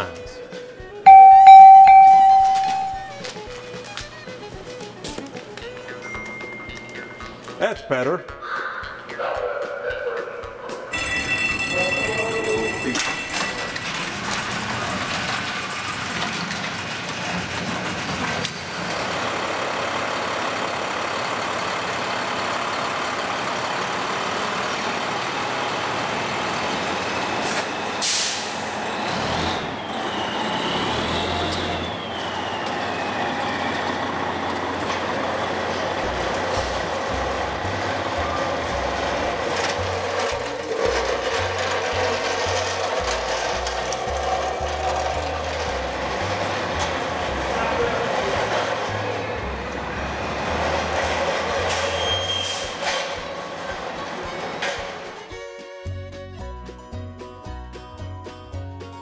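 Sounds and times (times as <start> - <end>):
diesel engine running: 12.6 - 55.3
air brake hiss: 27.4 - 28.7, 36.5 - 36.9.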